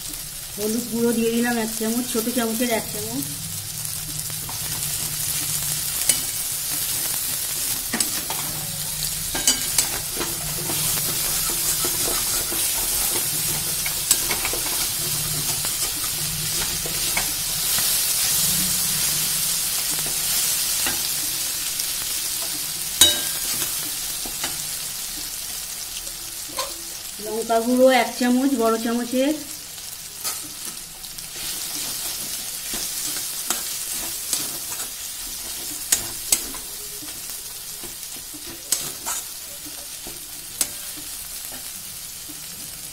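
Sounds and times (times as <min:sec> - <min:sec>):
food sizzling in oil: 0:00.0 - 0:42.9
steel spatula scraping a pan: 0:03.6 - 0:25.4, 0:30.1 - 0:41.7.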